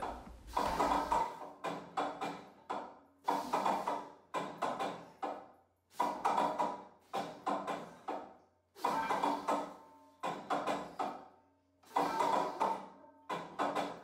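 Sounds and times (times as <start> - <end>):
weight plates clanking: 0.0 - 1.4.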